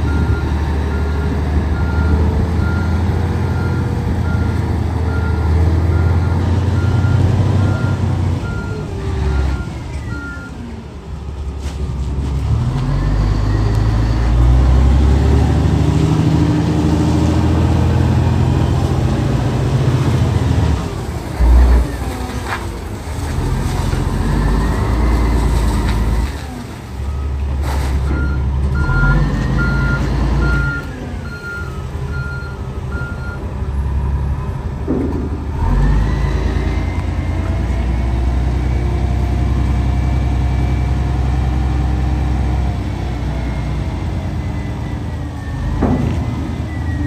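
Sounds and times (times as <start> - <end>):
diesel engine revving: 0.0 - 47.0
hydraulics raising dump body: 0.0 - 47.0
reversing alarm beeping: 28.1 - 33.4, 44.3 - 47.0.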